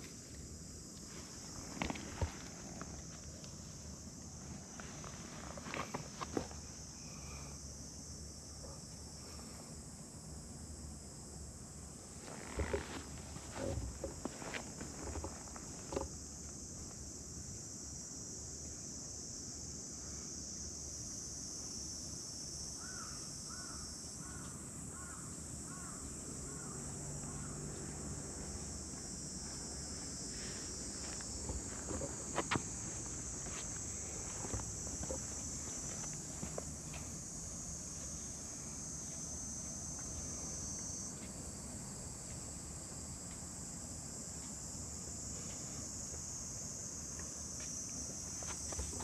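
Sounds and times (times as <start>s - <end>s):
high-pitched insect chorus: 0.0s - 49.0s
crow cawing: 22.8s - 27.6s.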